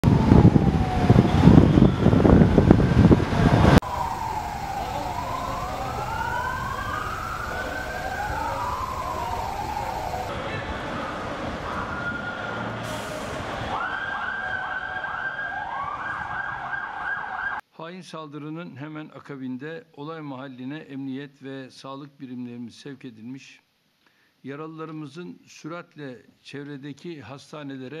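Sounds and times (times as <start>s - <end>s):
emergency sirens wailing: 0.0s - 17.6s
loud low street noise: 0.0s - 17.6s.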